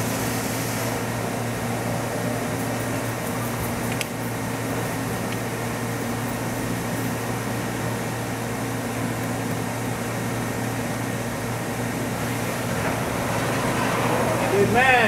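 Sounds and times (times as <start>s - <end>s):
machine hum: 9.8s - 15.0s.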